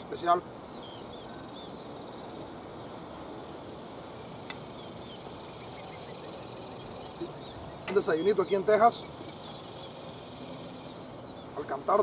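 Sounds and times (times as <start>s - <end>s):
cicadas droning: 0.0s - 12.0s
bird chirps: 0.7s - 12.0s.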